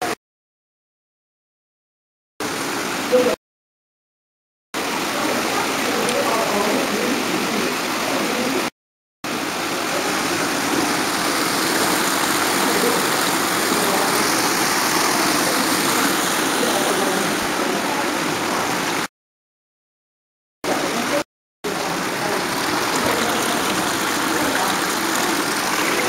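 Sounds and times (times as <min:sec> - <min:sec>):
steady rushing noise: 0:09.8 - 0:17.7.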